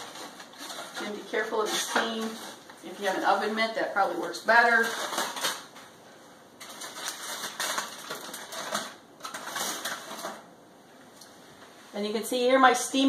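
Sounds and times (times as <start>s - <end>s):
aluminium foil crinkling: 0.0s - 5.9s, 6.5s - 10.5s.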